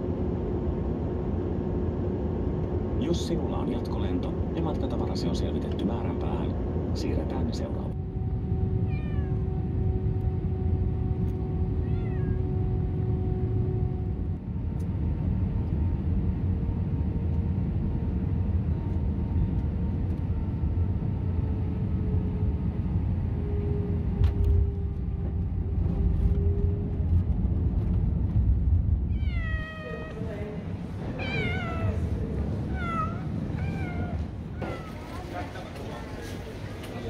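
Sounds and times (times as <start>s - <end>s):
airplane engine and airflow rumble: 0.0s - 37.0s
cat meowing: 8.9s - 9.4s, 11.8s - 12.4s, 29.1s - 30.2s, 31.2s - 32.1s, 32.7s - 35.4s.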